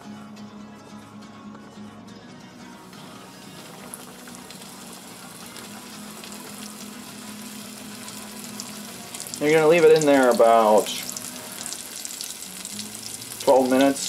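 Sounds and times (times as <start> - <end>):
oil sizzling and bubbling: 2.9 - 14.0.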